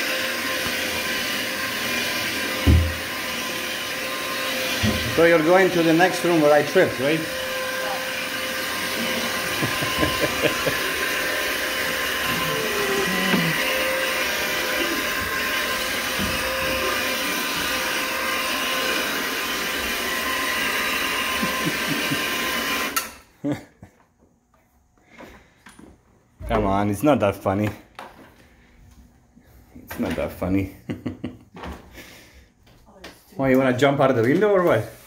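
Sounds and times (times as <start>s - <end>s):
carpet scrubbing machine running: 0.0s - 23.1s.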